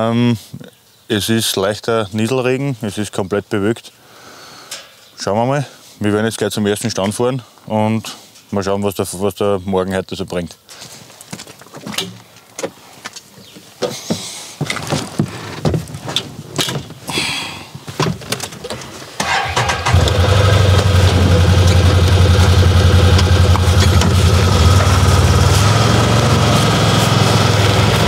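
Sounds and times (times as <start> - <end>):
knocks and clatters: 17.9 - 28.0
engine starting and idling: 19.2 - 28.0.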